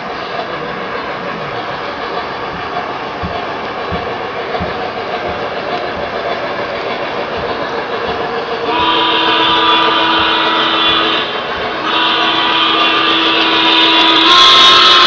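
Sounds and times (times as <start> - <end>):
model train cars rumbling on track: 0.0 - 15.0
clicks over rail joints: 0.3 - 8.8
electronic train whistle: 8.6 - 15.0.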